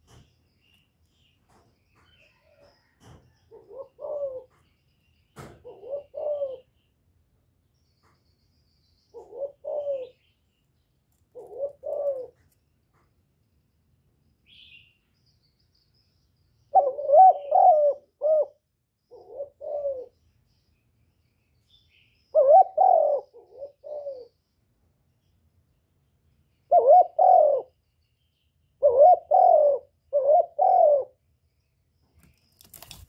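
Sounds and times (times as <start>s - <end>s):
dove cooing: 2.3s - 4.6s, 5.5s - 6.8s, 9.2s - 10.2s, 11.3s - 12.5s, 16.7s - 20.2s, 22.3s - 24.4s, 26.7s - 27.8s, 28.8s - 31.2s.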